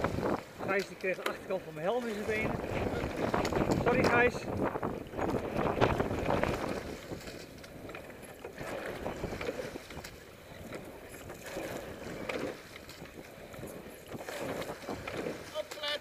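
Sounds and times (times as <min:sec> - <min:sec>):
oar strokes in water: 0:00.0 - 0:16.0
wind on microphone: 0:00.0 - 0:16.0.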